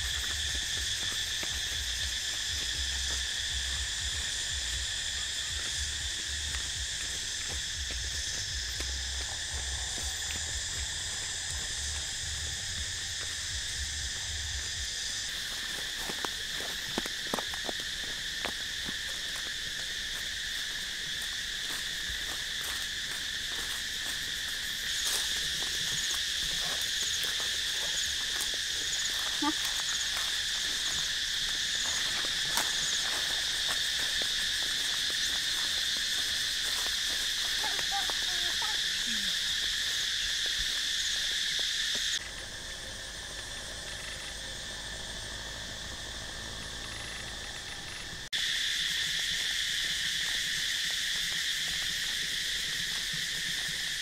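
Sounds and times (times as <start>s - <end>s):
insects buzzing: 0.0s - 54.0s
soft footsteps: 15.4s - 38.2s.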